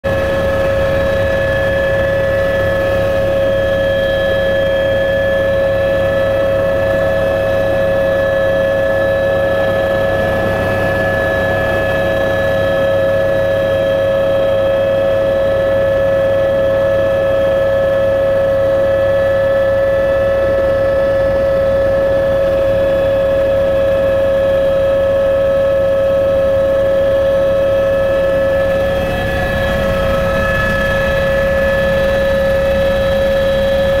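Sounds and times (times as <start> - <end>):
helicopter engine and rotors droning: 0.0 - 34.0.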